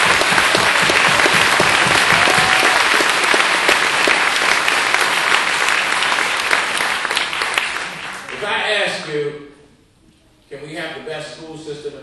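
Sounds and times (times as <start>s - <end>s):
large audience applauding: 0.0s - 8.6s.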